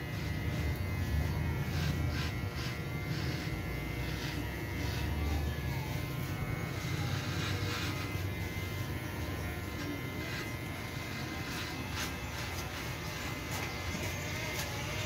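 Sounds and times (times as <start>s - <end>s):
electric hair clipper buzzing: 0.0s - 15.0s
clipper blade strokes on head: 9.7s - 15.0s.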